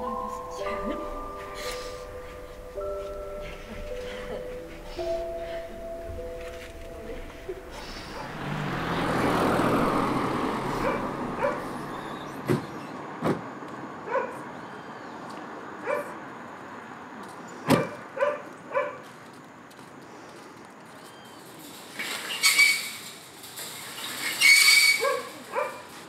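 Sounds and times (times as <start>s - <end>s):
vehicle passing: 0.0s - 17.6s
dog barking: 7.8s - 8.5s, 10.7s - 11.8s, 14.1s - 14.4s, 15.8s - 16.2s, 17.7s - 19.1s, 25.0s - 25.9s.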